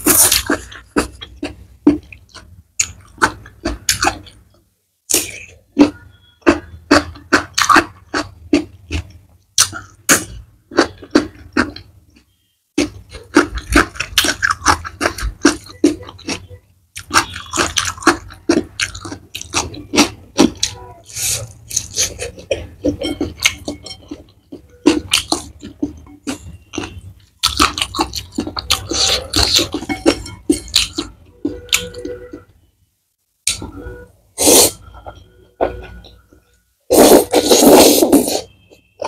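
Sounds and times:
crunchy chewing: 5.1 - 32.4.

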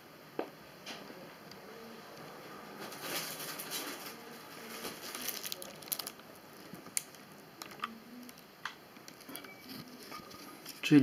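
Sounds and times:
plastic packaging crinkling: 2.8 - 8.4.

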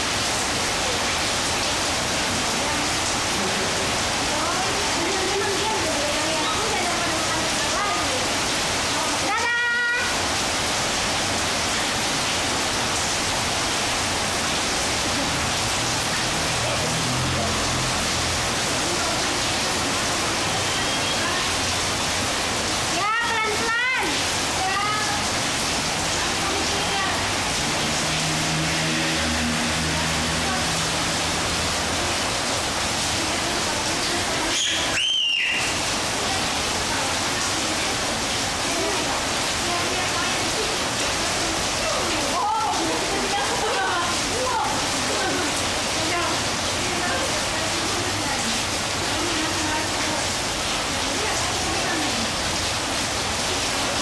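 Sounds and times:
rain splashing into puddles: 0.0 - 54.0
toddler squealing: 34.6 - 35.7.

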